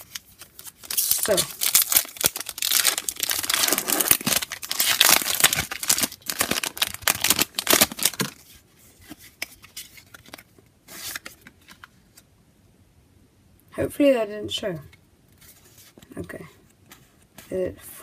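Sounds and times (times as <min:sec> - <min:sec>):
foil wrapper tearing and crinkling: 0:00.0 - 0:08.4
light rustles of cards: 0:15.3 - 0:17.7.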